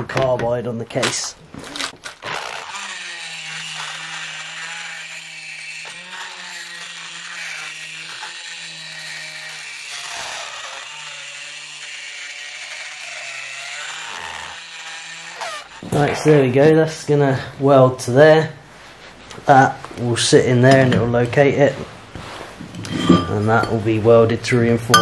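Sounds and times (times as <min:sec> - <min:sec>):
die grinder grinding steel: 0:01.8 - 0:16.6, 0:22.8 - 0:23.8.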